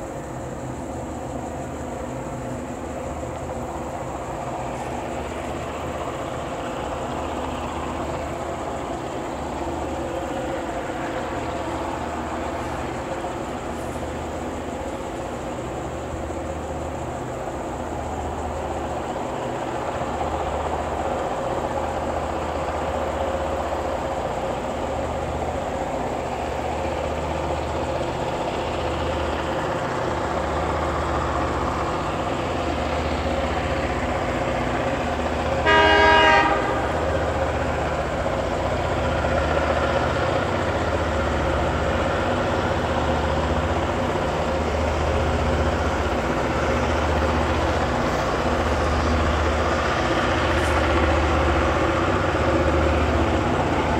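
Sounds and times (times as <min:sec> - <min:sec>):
diesel locomotive engines throbbing: 0:00.0 - 0:53.9
train horn blast: 0:35.6 - 0:37.1.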